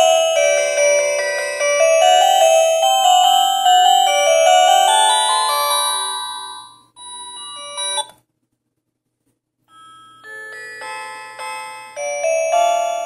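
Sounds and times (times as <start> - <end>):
phone ringtone melody: 0.0 - 8.1, 9.7 - 13.0.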